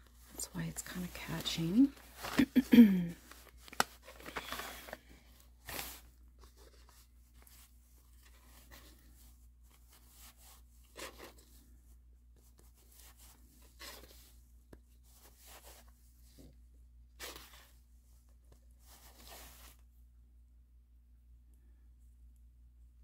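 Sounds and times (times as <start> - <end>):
light paper rustling: 0.0 - 16.6, 17.2 - 19.8
thread swishing through paper: 5.6 - 7.7.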